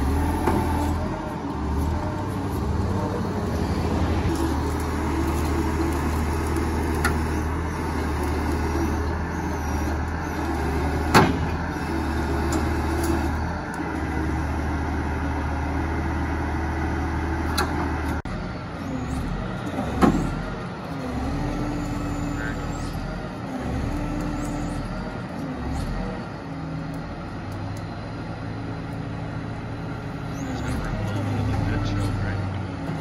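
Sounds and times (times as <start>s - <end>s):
diesel engine running: 0.0s - 33.0s.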